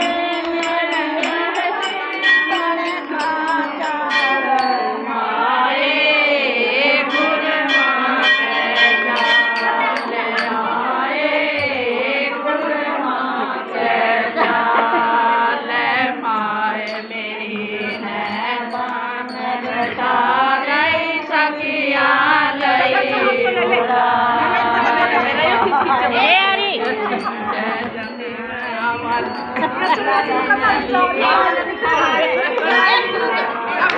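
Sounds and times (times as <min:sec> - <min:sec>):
hand claps: 0:00.0 - 0:04.7
women singing devotional song: 0:00.0 - 0:33.9.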